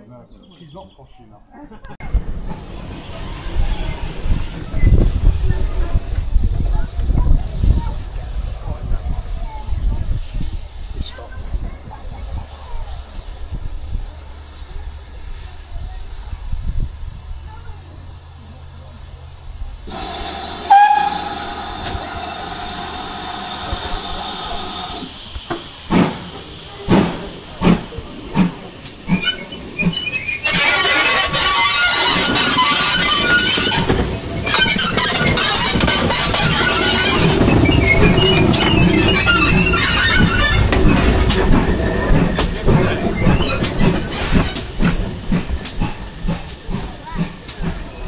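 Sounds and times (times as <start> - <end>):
wheels clicking on rail joints: 2.0 - 48.0
steam locomotive exhaust chuffs: 2.2 - 48.0
steam hiss with whistling tone: 19.8 - 28.0, 29.0 - 41.1.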